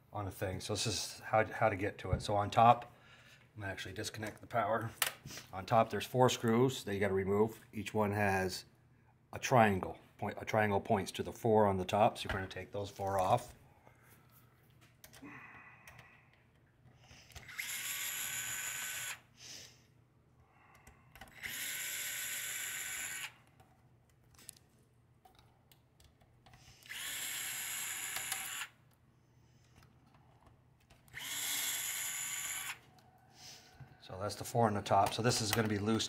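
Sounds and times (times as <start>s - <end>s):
power screwdriver whirring: 17.3s - 19.3s, 21.2s - 23.5s, 26.6s - 28.8s, 31.0s - 32.9s.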